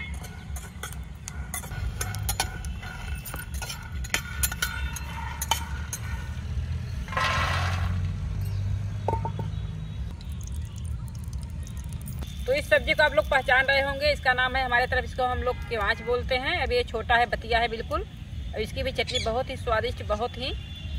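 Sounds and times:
metal spatula scraping peanuts in pan: 0.1 - 8.0.

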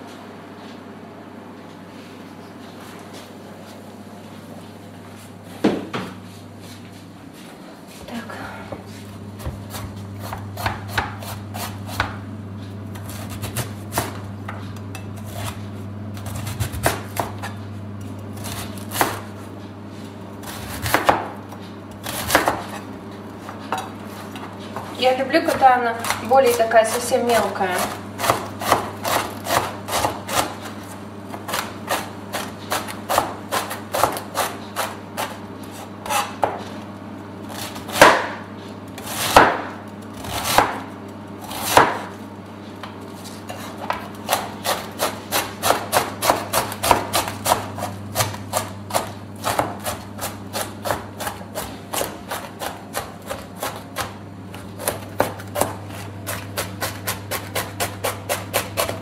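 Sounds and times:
knife chopping on plastic board: 9.4 - 12.2, 20.5 - 21.3, 22.0 - 22.8, 27.4 - 30.6, 31.3 - 35.4, 37.6 - 38.4, 39.0 - 40.9, 41.5 - 42.2, 43.5 - 59.0.

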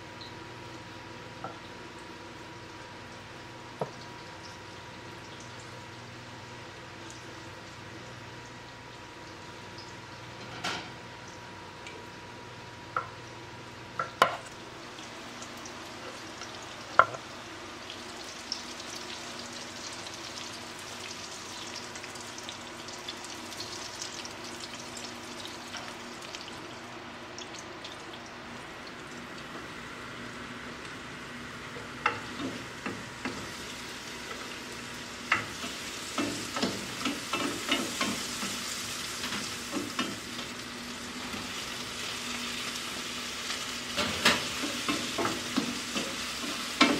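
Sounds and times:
oil sizzling in frying pan: 13.0 - 46.9.

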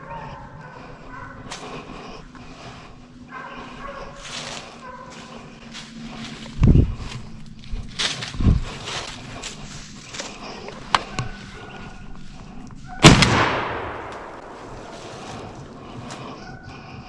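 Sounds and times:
shotgun blast with echo: 13.0 - 14.6.

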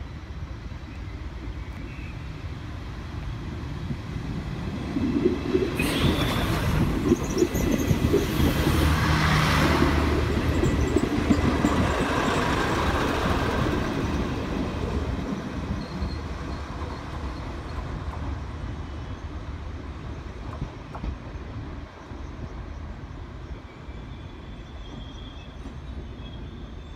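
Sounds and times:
diesel train engine drone: 0.0 - 26.9
train wheel noise: 4.3 - 18.8.

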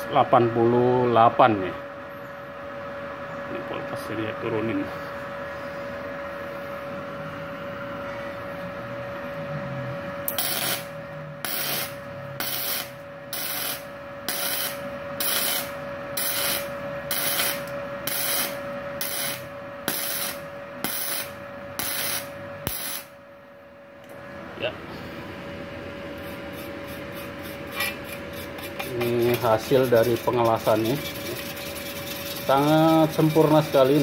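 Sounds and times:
welder arc bursts: 10.3 - 23.2.

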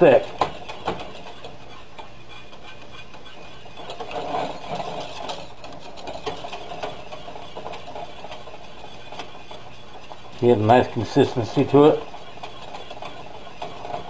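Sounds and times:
spoon scraping a saucepan: 0.0 - 14.0.

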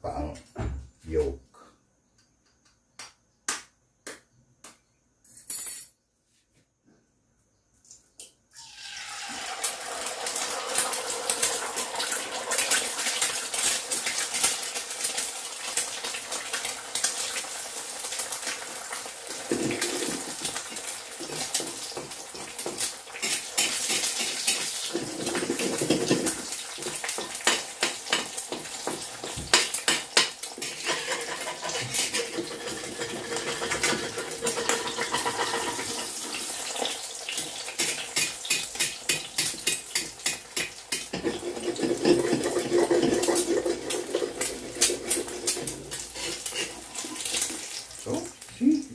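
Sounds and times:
eggs sizzling in hot oil: 8.5 - 48.9
metal spatula scraping a wok: 30.6 - 36.4, 41.0 - 47.4.

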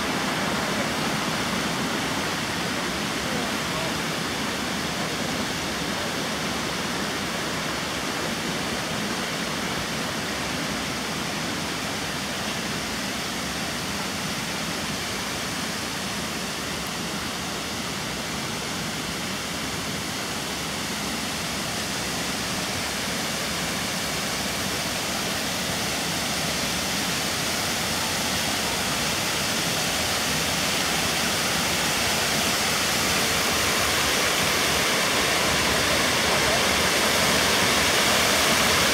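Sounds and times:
water rushing over rocky cascade: 0.0 - 38.9.

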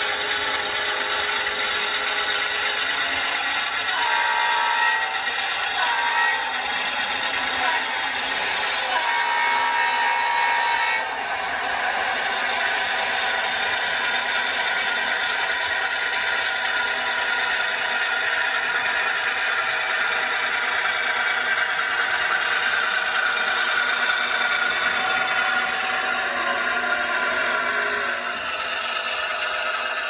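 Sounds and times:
mechanical whir and clatter: 0.0 - 30.0
model train diesel engine sound: 0.0 - 30.0.

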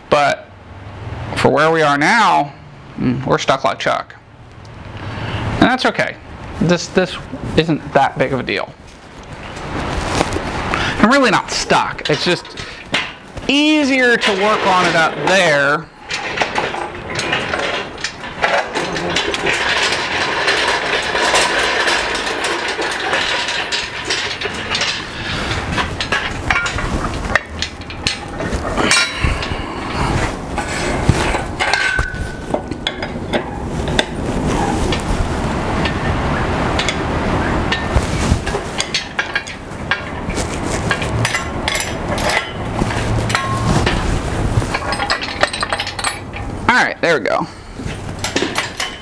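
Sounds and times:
casters rolling on concrete: 5.8 - 49.0
metal frame rattling and clanking: 8.0 - 49.0
metal tools knocking and clinking: 11.6 - 25.2, 25.8 - 29.8, 30.6 - 34.2, 38.5 - 44.0, 44.7 - 46.6, 48.2 - 49.0.

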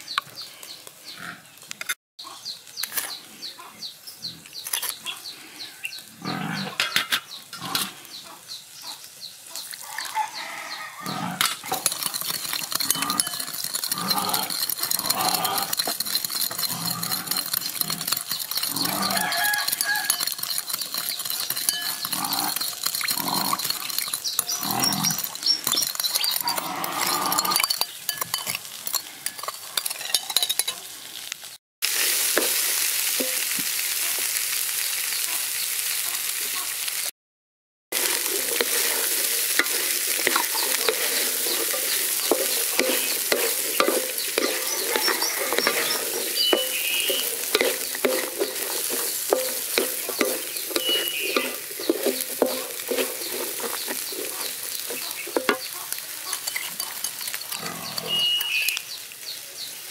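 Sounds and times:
corn sizzling in wok: 0.0 - 37.1, 37.9 - 59.9
wooden spatula scraping wok: 11.1 - 30.9, 31.8 - 33.4, 37.9 - 58.6
metal spoon clinking in bowl: 11.4 - 30.8, 38.0 - 58.8.

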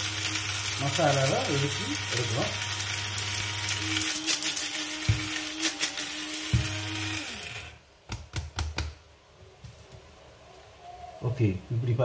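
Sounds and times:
mixer grinder motor running: 0.0 - 7.8
motor winding down hum: 0.1 - 7.8.

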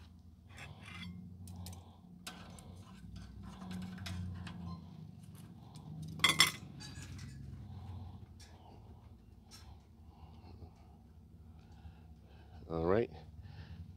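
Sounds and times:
tongs scraping grill grate: 0.5 - 4.6.

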